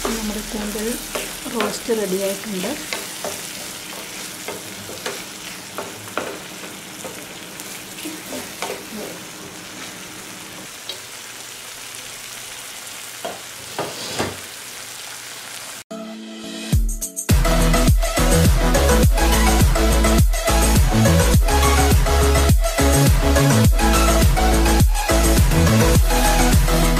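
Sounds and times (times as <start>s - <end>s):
spatula scraping and tapping pan: 0.0s - 2.0s, 2.8s - 7.4s, 8.0s - 8.9s
squid sizzling in a frying pan: 0.0s - 15.8s.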